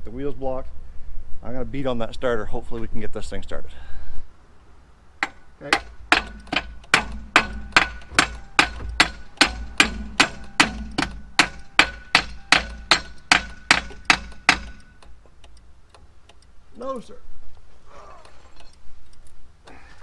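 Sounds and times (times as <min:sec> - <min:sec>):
hammer striking metal: 0:05.2 - 0:15.1.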